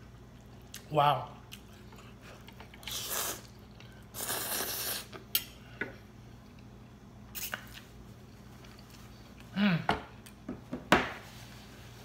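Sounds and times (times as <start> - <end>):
slurping noodles: 2.8 - 5.2.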